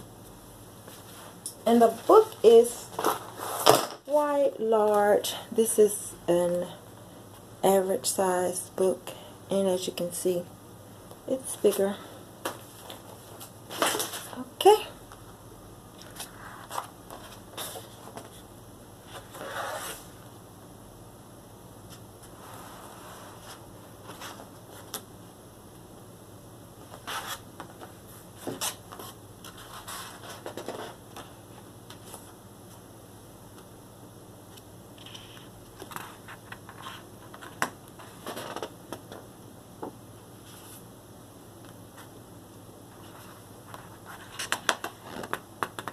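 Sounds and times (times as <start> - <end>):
book pages rustling: 16.0 - 18.5, 43.0 - 45.9.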